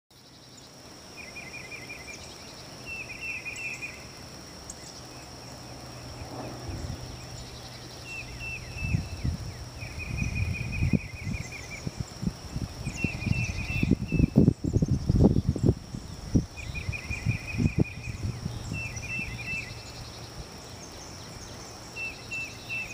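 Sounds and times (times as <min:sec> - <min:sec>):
high insect drone: 0:00.2 - 0:22.9
gusty wind rumble on microphone: 0:05.3 - 0:20.6.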